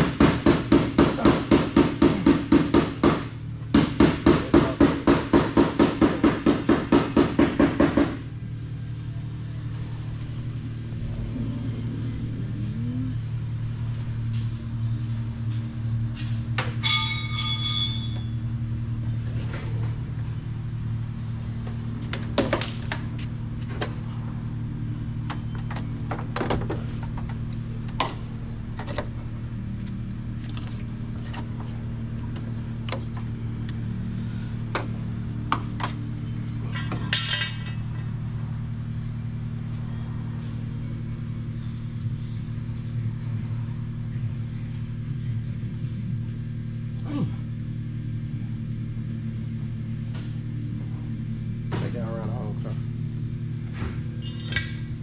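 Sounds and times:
steady low hum: 0:00.0 - 0:55.0
charger clamps clicking and clanking: 0:35.5 - 0:38.2, 0:53.8 - 0:55.0.

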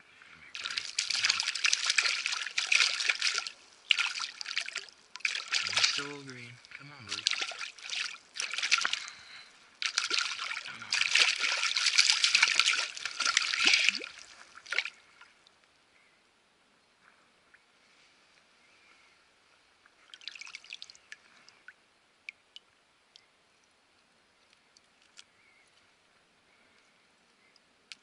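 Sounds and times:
stream water splashing: 0:00.5 - 0:15.5, 0:20.0 - 0:21.6.

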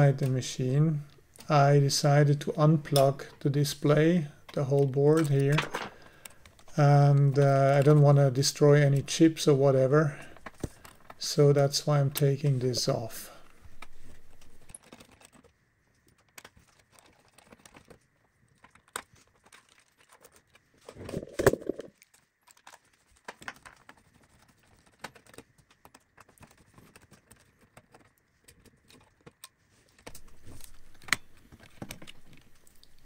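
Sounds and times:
clatter of handling: 0:13.7 - 0:32.5.

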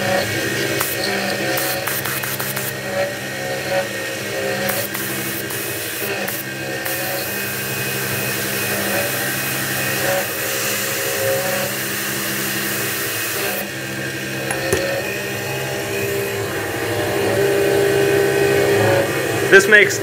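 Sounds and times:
milling spindle whine: 0:00.0 - 0:20.0
coolant spray hiss: 0:00.8 - 0:02.8.

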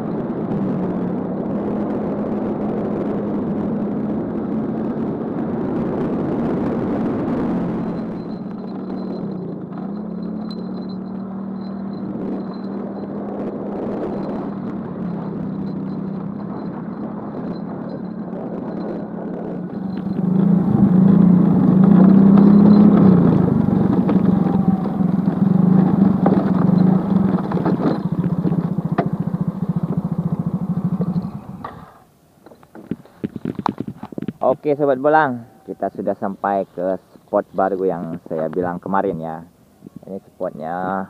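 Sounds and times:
motorcycle engine running: 0:00.0 - 0:32.1.

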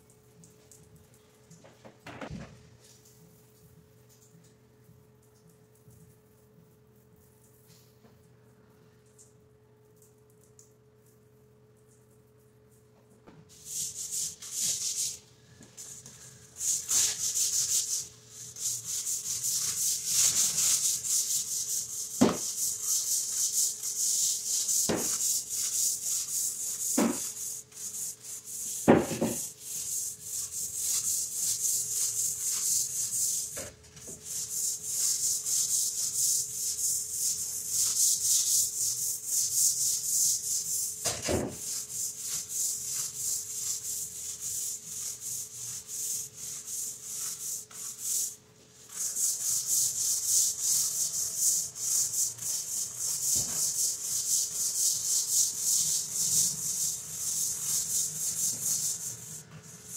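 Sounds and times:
brush scrubbing wet tile floor: 0:13.5 - 0:15.2, 0:15.8 - 0:59.9.

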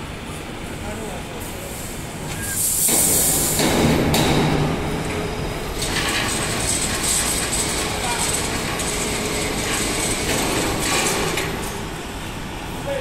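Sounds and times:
welding machine clattering: 0:02.6 - 0:12.0.

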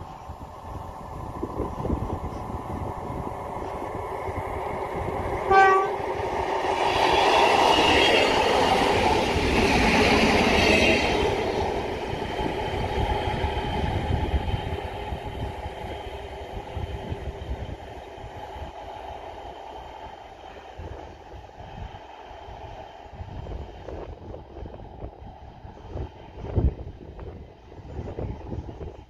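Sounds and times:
train engine passing: 0:00.0 - 0:29.0
train horn blast: 0:05.5 - 0:06.0.

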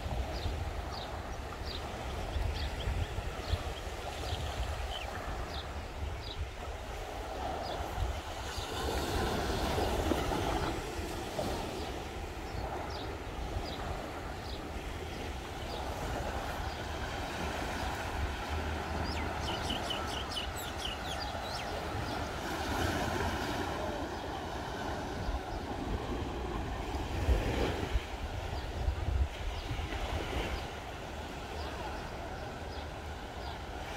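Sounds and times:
small waves washing on beach: 0:00.0 - 0:33.9
wind rumbling on microphone: 0:00.0 - 0:33.9
bird chirps: 0:19.0 - 0:22.3.

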